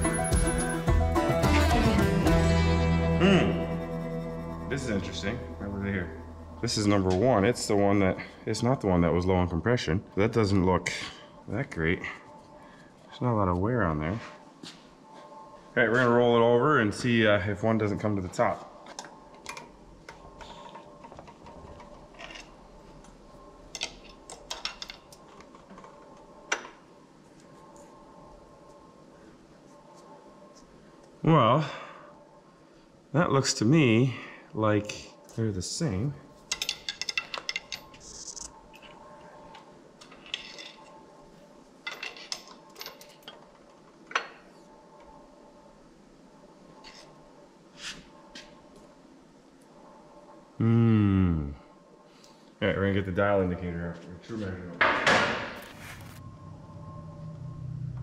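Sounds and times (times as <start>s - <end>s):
faint steady hum: 2.6s - 58.0s
metal tools clinking: 36.5s - 38.9s, 41.8s - 43.4s.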